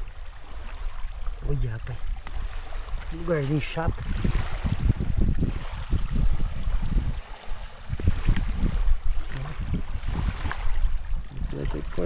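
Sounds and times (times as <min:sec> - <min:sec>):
running water splashing: 0:00.0 - 0:12.0.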